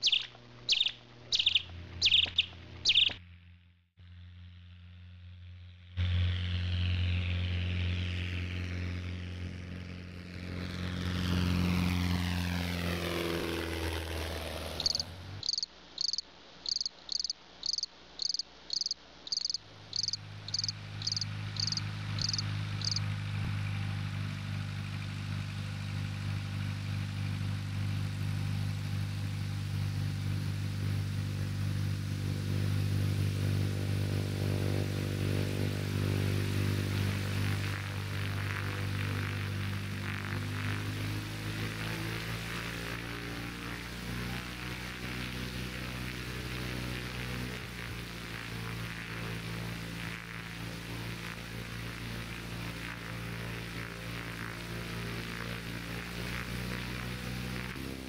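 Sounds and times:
high chirps: 0.0s - 3.2s, 14.8s - 23.0s
light aircraft engine and propeller: 0.0s - 58.0s.

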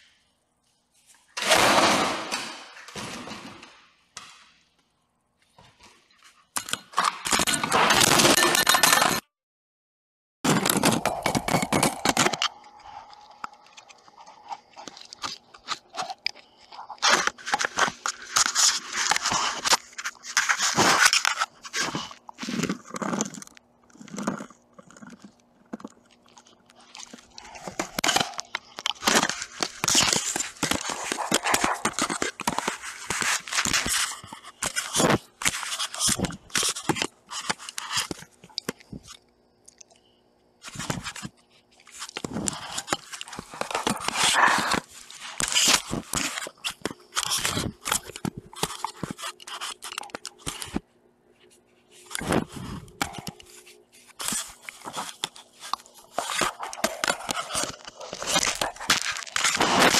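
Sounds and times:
dog chewing on camera: 21.9s - 33.9s.

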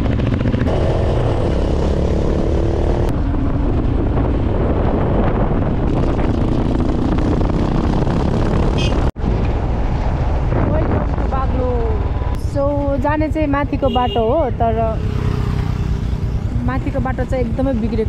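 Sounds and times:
passing motorcycle engine: 0.0s - 9.1s, 10.2s - 18.0s
motorcycle engine drone: 0.0s - 18.0s
wind rumble: 0.0s - 18.0s.

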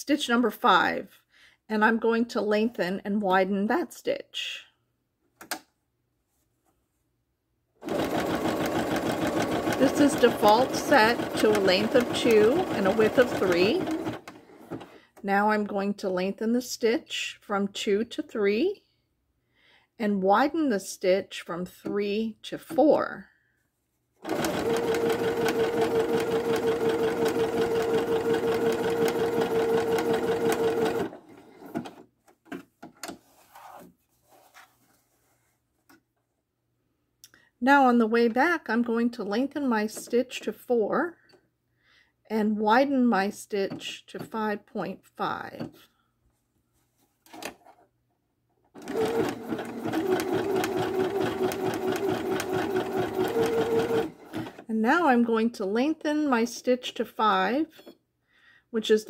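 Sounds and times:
sewing machine stitching: 7.8s - 15.0s, 24.2s - 32.0s, 48.8s - 54.7s
fabric rustling: 33.2s - 35.8s.

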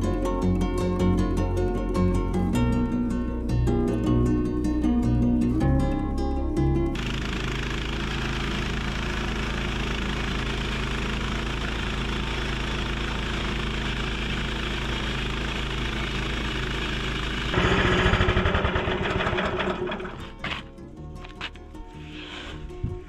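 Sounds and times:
bandsaw mill engine cutting log: 7.0s - 20.7s.

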